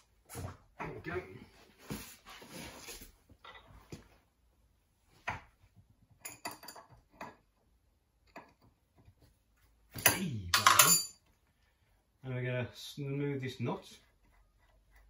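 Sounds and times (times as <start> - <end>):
metallic clicks and knocks: 10.0 - 11.2.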